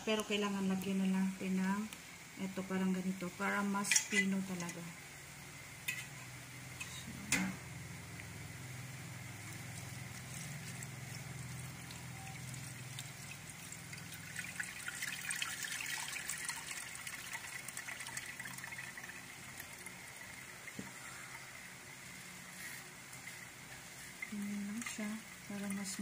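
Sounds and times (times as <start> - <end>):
low steady hum: 0.0 - 26.0
juice trickling through strainer: 7.9 - 26.0.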